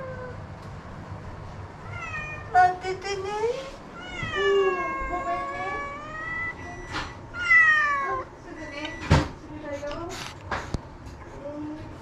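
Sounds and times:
cat meowing: 1.8 - 2.5, 4.0 - 8.3.

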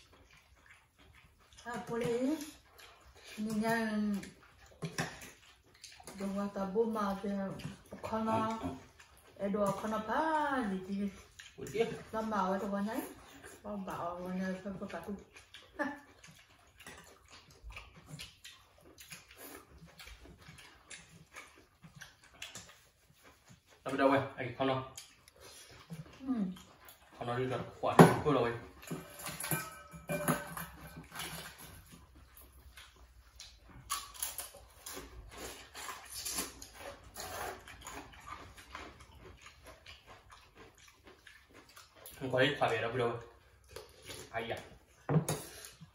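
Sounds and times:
people chewing and slurping: 0.0 - 45.9
people slurping noodles: 34.9 - 39.6.

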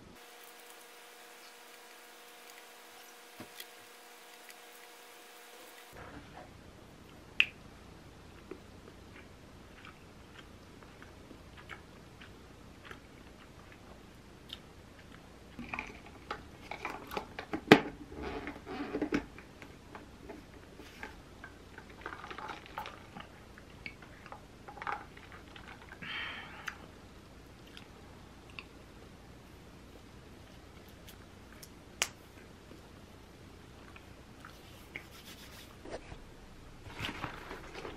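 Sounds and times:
chewing: 8.3 - 17.2, 27.6 - 27.9.

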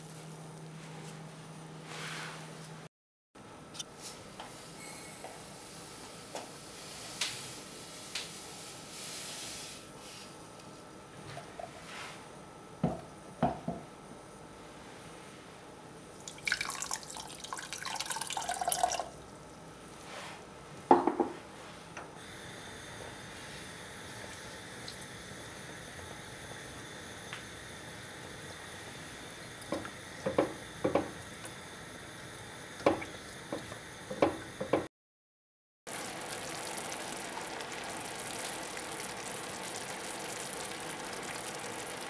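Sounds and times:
water pouring: 16.2 - 19.2, 35.9 - 42.0
sugar pouring into saucepan: 16.3 - 19.1
light knocks on saucepan: 20.9 - 21.4.

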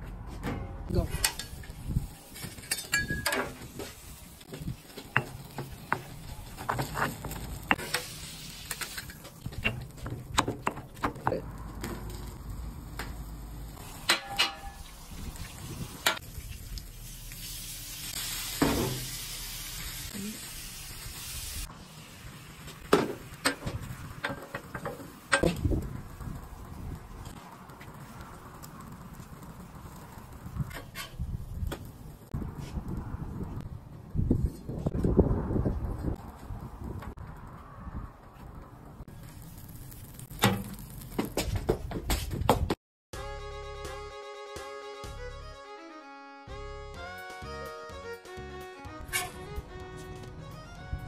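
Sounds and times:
food sizzling: 1.3 - 32.4, 39.1 - 41.5
metal spatulas scraping griddle: 30.7 - 31.2.

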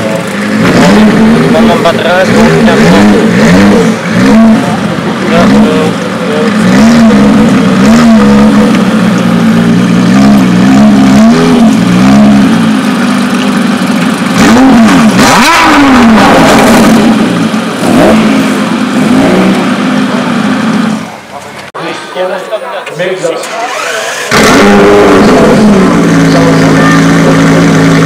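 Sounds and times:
car engine revving: 0.0 - 21.6, 23.4 - 28.0.

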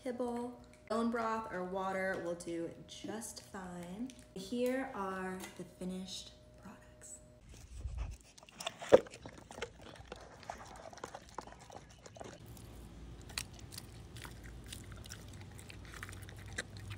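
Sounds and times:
dogs chewing wet food: 7.5 - 16.9.

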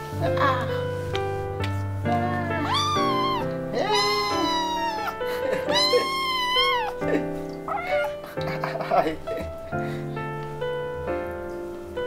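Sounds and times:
background music: 0.0 - 12.0
cat meowing: 2.6 - 8.2.

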